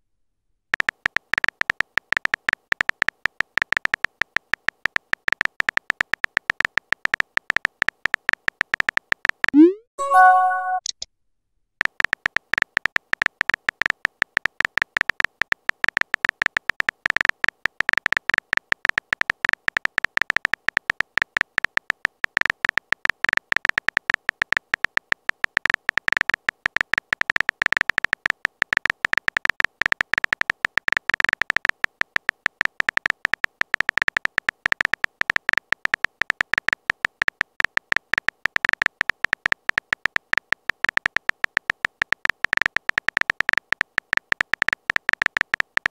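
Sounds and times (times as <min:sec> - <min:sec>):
keyboard typing clicks: 0:00.8 - 0:11.0, 0:11.8 - 0:45.9.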